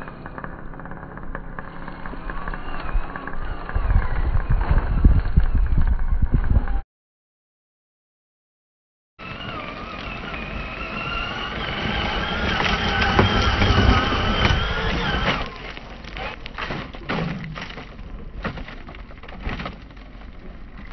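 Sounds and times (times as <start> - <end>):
electric motor and gears whining: 0.0 - 6.8, 9.2 - 20.9
gravel crunching: 9.2 - 20.9.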